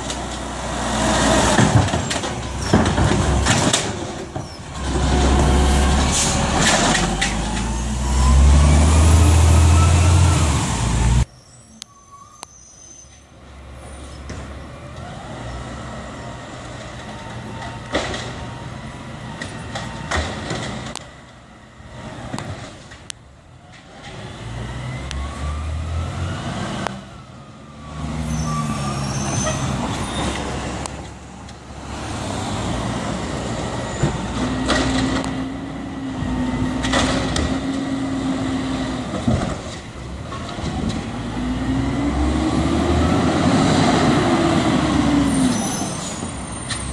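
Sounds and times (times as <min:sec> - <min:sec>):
diesel engine revving: 0:00.0 - 0:11.3, 0:24.0 - 0:39.3, 0:40.6 - 0:46.9.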